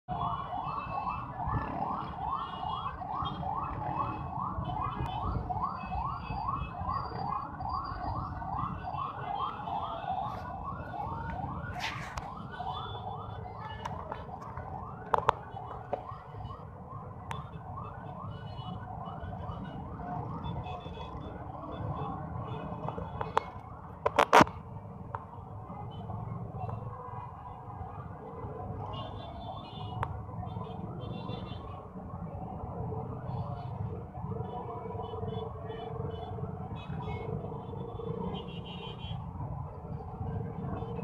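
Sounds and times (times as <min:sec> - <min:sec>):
siren in fast yelp: 0:00.1 - 0:23.6
low city rumble: 0:00.1 - 0:41.0.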